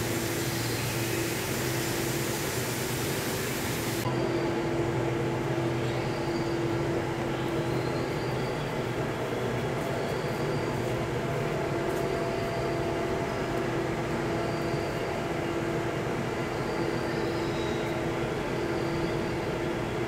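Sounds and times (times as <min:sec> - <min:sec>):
hiss: 0:00.0 - 0:04.0.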